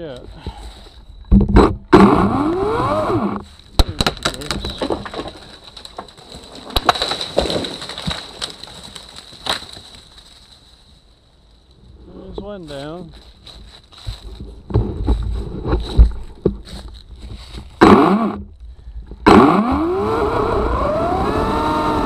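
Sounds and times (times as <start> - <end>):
battery chainsaw cutting: 2.0 - 3.4, 17.8 - 18.5, 19.3 - 22.0
tree branches cracking and snapping: 3.4 - 10.9.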